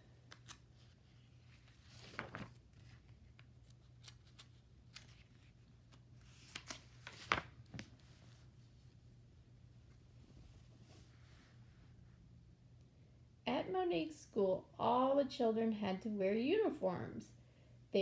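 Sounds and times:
book pages turning: 0:00.2 - 0:08.5.

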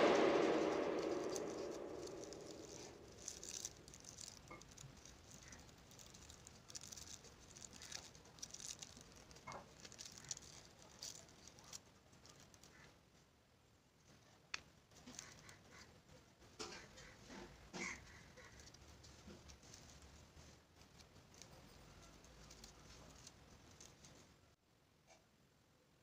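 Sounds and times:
paper rustling: 0:01.2 - 0:12.9, 0:16.8 - 0:24.3.

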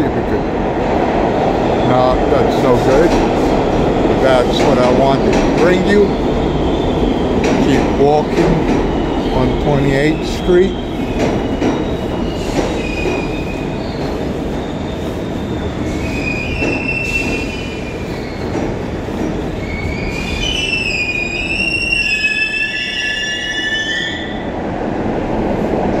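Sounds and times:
subway train rumbling: 0:00.0 - 0:26.0
shrill wheel squeal: 0:09.0 - 0:18.5, 0:19.4 - 0:24.5.

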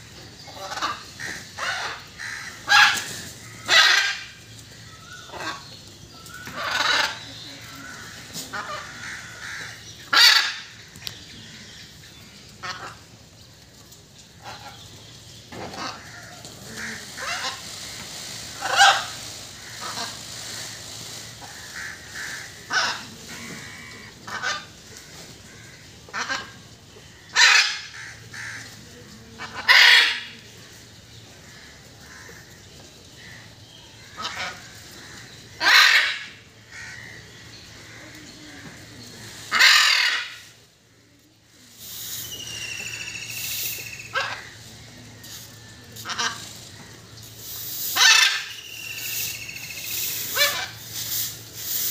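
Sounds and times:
peafowl calling: 0:00.4 - 0:13.2, 0:14.4 - 0:28.8, 0:29.4 - 0:30.5, 0:33.2 - 0:40.8, 0:41.7 - 0:51.9
faint bird calls: 0:14.4 - 0:51.9.

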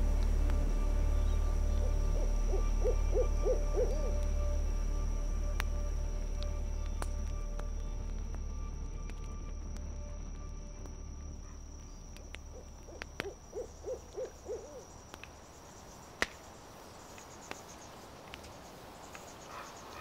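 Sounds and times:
campfire popping and crackling: 0:00.0 - 0:19.4
owl hooting: 0:01.1 - 0:04.5, 0:11.4 - 0:15.0.

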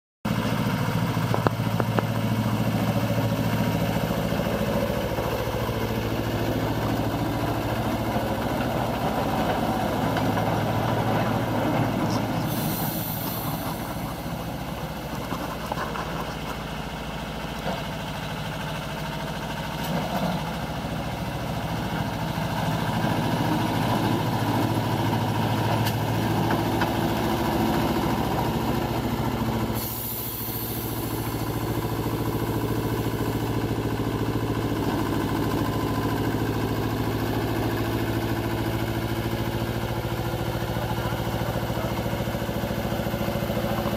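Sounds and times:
locomotive engine running: 0:00.3 - 0:43.9.

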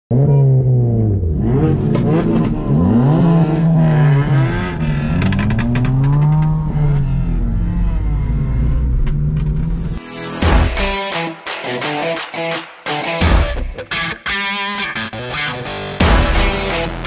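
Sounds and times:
car engines revving: 0:00.1 - 0:10.0
engine crackles: 0:01.4 - 0:09.9.

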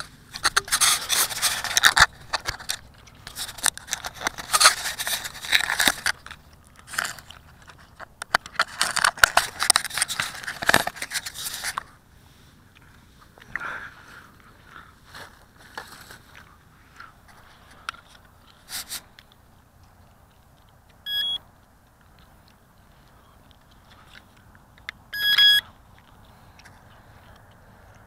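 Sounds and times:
fingers rubbing camera microphone: 0:00.0 - 0:06.1.

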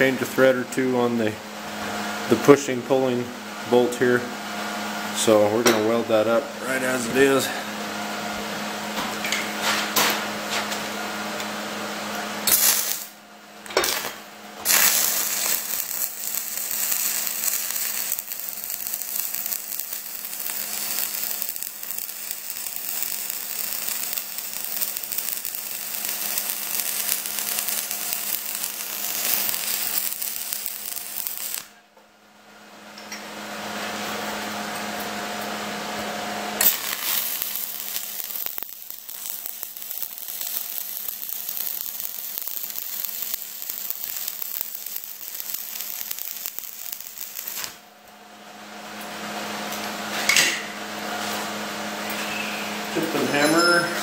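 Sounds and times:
welding arc crackling: 0:12.4 - 0:31.7, 0:36.5 - 0:47.9.

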